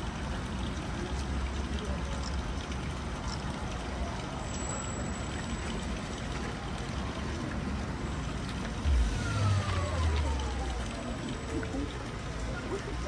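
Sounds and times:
heavy rain on pavement: 0:00.0 - 0:13.0
low rumble: 0:08.8 - 0:11.4.

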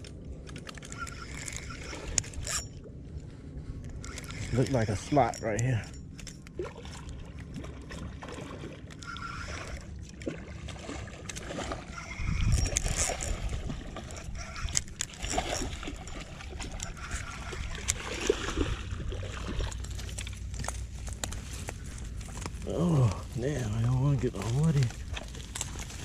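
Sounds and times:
fish splashing in water: 0:06.5 - 0:22.6
wind gusting on microphone: 0:11.9 - 0:19.7.

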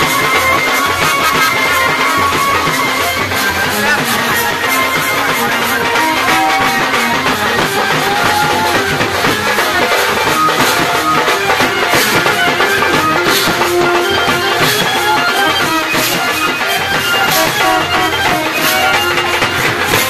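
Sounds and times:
loud music with drums: 0:00.0 - 0:20.0.

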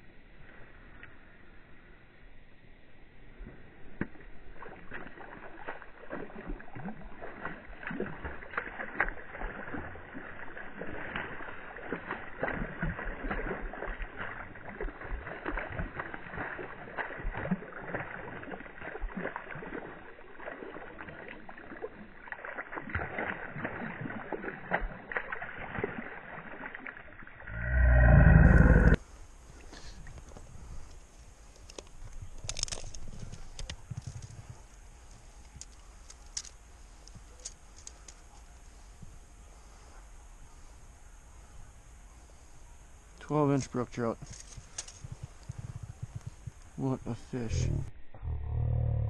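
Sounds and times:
fish splashing and thrashing: 0:03.4 - 0:38.9, 0:44.0 - 0:47.6
loud low rumble: 0:27.4 - 0:29.0, 0:47.5 - 0:49.0.

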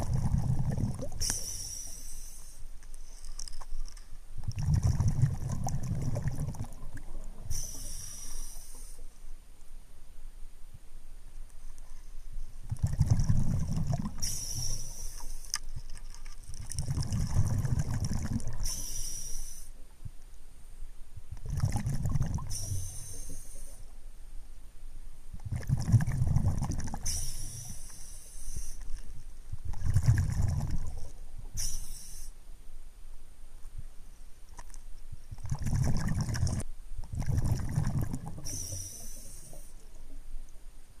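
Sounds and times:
exhaust bubbles burbling: 0:00.0 - 0:01.2, 0:04.4 - 0:07.5, 0:12.7 - 0:14.2, 0:16.7 - 0:18.6, 0:21.4 - 0:22.5, 0:25.4 - 0:27.0, 0:29.7 - 0:31.1, 0:35.4 - 0:38.5
regulator hiss: 0:01.2 - 0:02.7, 0:07.5 - 0:09.2, 0:14.2 - 0:15.6, 0:18.6 - 0:19.8, 0:22.5 - 0:23.9, 0:27.1 - 0:28.9, 0:31.6 - 0:32.4, 0:38.4 - 0:39.8.

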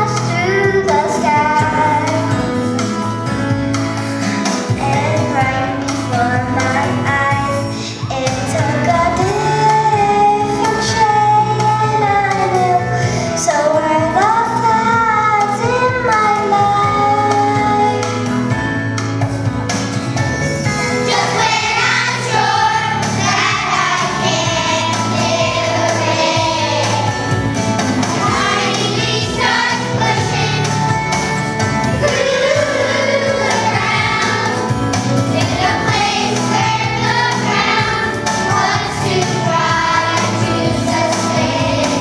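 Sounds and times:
musical accompaniment: 0:00.0 - 0:42.0
children's choir singing: 0:20.8 - 0:31.3, 0:31.9 - 0:42.0.

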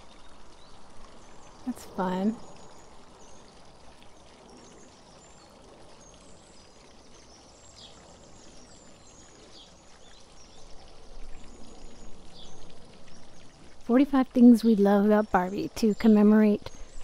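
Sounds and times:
small birds chirping: 0:00.0 - 0:17.0
water fountain running: 0:00.0 - 0:17.0.

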